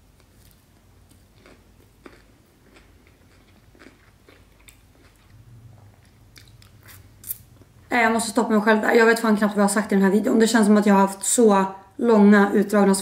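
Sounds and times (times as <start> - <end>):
person chewing: 0.1 - 7.8.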